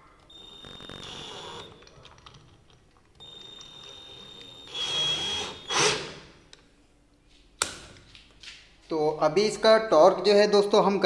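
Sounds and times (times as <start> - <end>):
cordless drill motor whirring: 0.3 - 2.3, 3.2 - 6.3.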